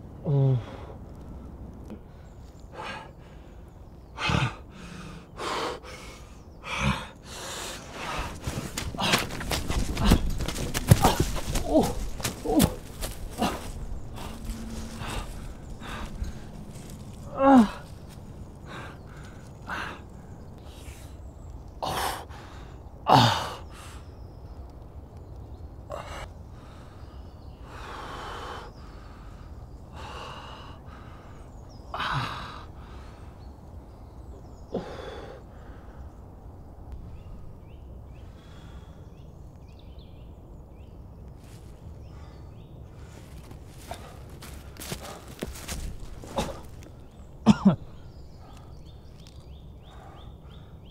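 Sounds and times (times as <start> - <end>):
man gasping and groaning: 0.2 - 1.0, 17.2 - 17.9
footsteps on dry leaves: 8.3 - 19.5, 43.0 - 47.0.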